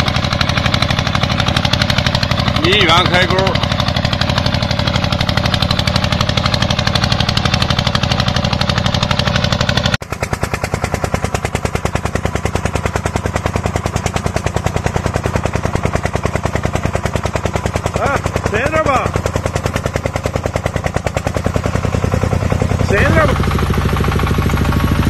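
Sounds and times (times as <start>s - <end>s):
small farm machine engine: 0.0s - 25.0s
trenching machine engine running: 0.0s - 25.0s.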